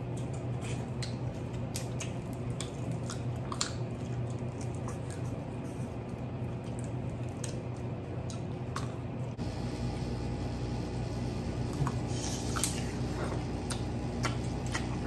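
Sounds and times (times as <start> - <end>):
wet squishing: 0.0 - 9.4
low hum: 0.0 - 15.0.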